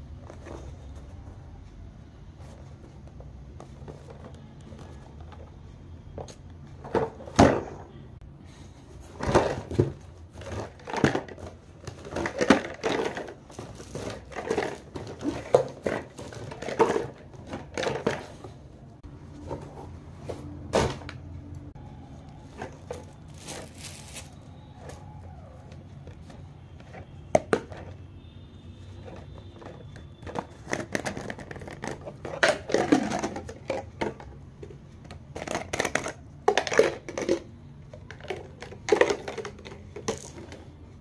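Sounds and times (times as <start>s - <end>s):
cardboard and plastic jars knocking: 9.2s - 18.4s, 26.1s - 28.0s, 29.0s - 40.8s
plastic wrap crinkling and rustling: 22.5s - 25.4s.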